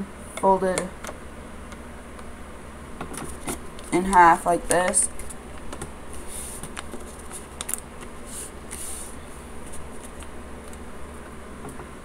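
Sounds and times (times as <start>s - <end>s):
paper rustling and rubbing: 6.1s - 10.3s.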